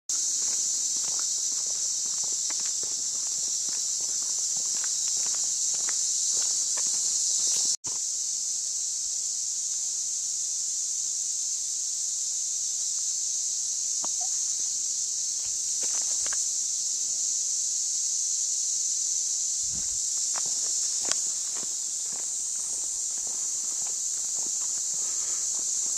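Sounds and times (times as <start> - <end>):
faint footsteps on gravel: 0.1 - 7.8, 15.4 - 16.5, 19.7 - 25.9
shrill insect chorus: 0.1 - 25.9.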